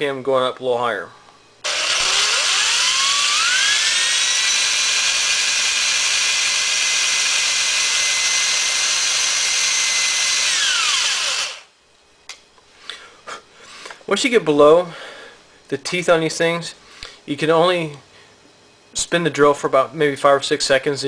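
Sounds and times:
electric drill motor whine: 1.6s - 11.7s.

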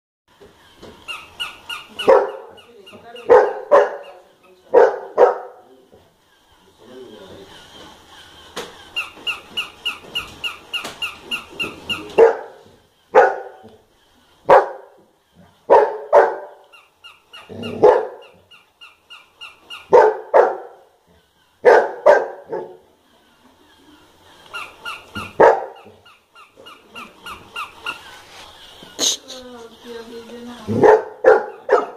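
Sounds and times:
toy puppy electronic yapping: 1.0s - 5.5s, 8.8s - 14.9s, 15.7s - 22.5s, 23.7s - 29.4s
dog barking loudly: 2.0s - 5.7s, 12.1s - 13.7s, 14.4s - 15.0s, 15.7s - 16.6s, 17.5s - 18.4s, 19.8s - 21.0s, 21.6s - 22.9s, 25.1s - 26.0s, 30.7s - 31.9s.

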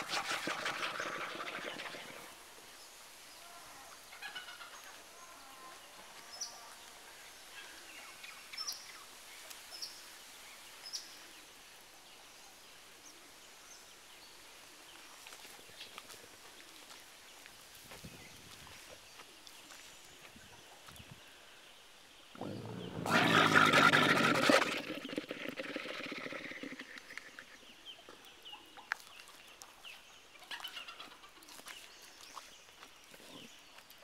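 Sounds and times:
camel growling: 22.4s - 27.4s.

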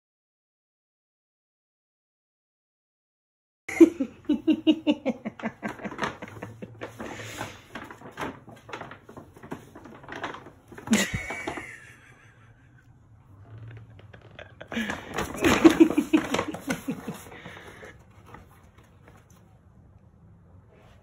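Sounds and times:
paper bag crinkling on floor: 5.2s - 12.1s, 13.5s - 19.5s.

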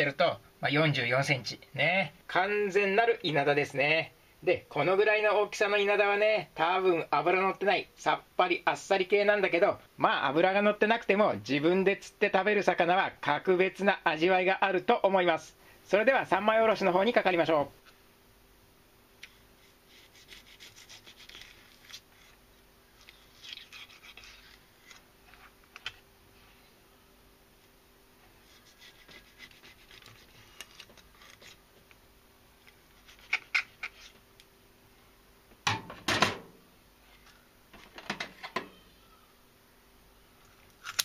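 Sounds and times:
knife scraping and crunching fish: 19.9s - 22.4s, 23.0s - 25.0s, 28.4s - 31.6s.

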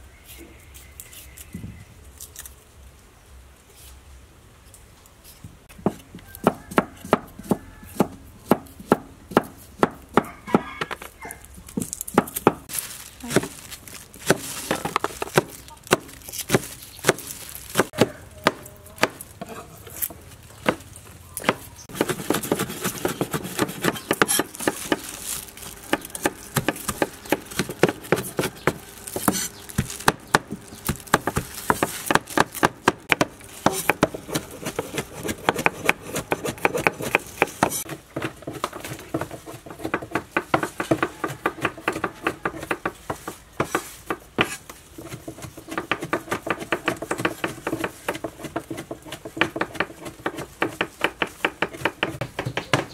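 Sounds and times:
cleaver chopping on wooden board: 5.8s - 11.0s, 14.3s - 19.2s, 21.4s - 25.1s, 25.9s - 52.9s.

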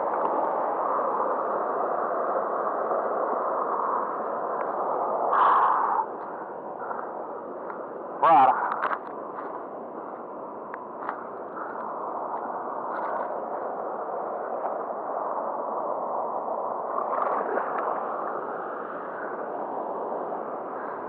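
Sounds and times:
faint ticks: 6.9s - 7.8s.

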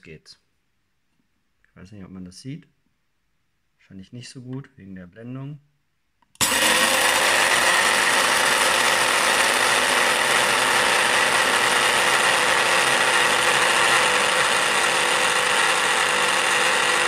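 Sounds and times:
coffee grinder motor whine: 6.4s - 17.0s.

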